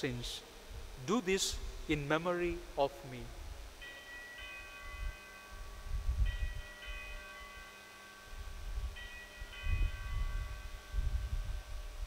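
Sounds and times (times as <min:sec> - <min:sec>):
altar bells chiming: 0:03.7 - 0:12.0.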